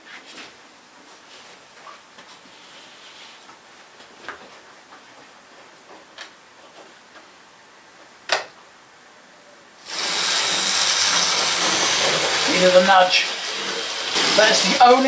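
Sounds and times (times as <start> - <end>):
loud rushing hiss: 9.8 - 15.0.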